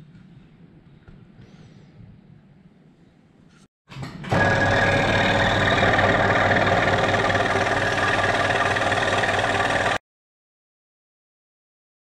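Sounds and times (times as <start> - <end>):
motor hum: 4.2 - 10.0
scroll saw cutting plywood: 4.3 - 10.0.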